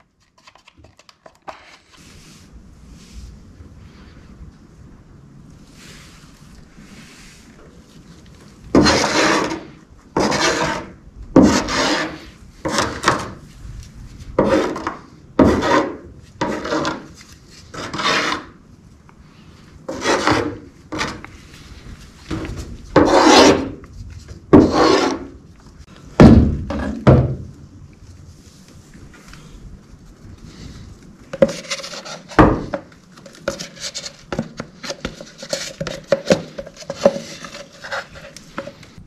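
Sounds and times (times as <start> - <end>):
wooden stick scraping in plastic cup: 8.8 - 13.2, 14.4 - 18.6, 19.9 - 21.4, 23.0 - 23.8, 24.6 - 25.3, 31.3 - 39.0.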